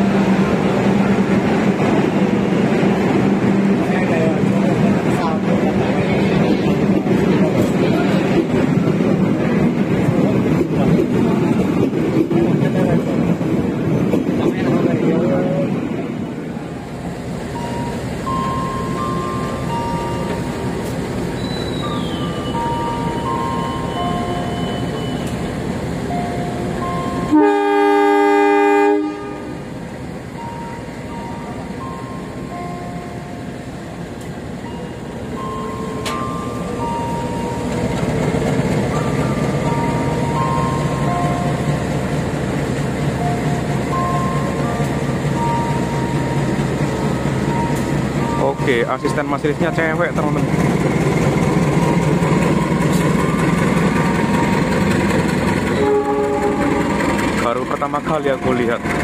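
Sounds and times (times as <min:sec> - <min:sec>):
diesel locomotive engine: 0:00.0 - 0:59.0
faint high whistle: 0:21.3 - 0:25.4
locomotive horn: 0:27.2 - 0:29.7, 0:55.6 - 0:57.2.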